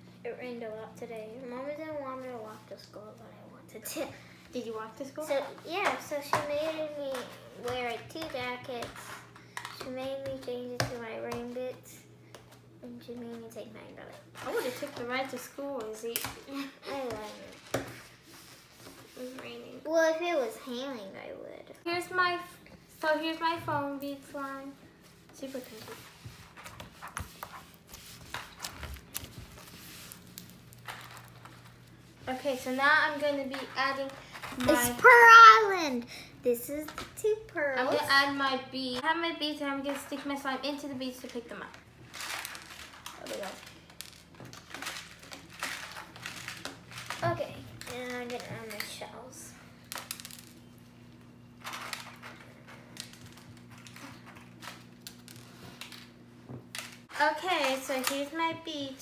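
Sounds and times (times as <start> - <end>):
plastic pieces clicking and rattling: 49.9 - 50.6.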